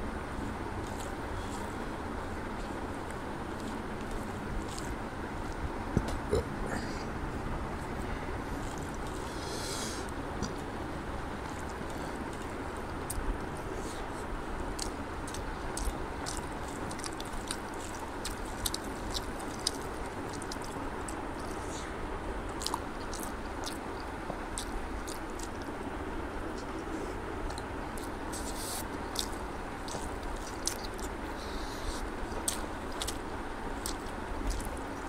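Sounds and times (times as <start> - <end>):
chewing and wet mouth smacking: 0.8 - 1.8, 2.5 - 6.5, 8.5 - 9.3, 11.4 - 14.0, 14.6 - 25.9, 27.4 - 35.0.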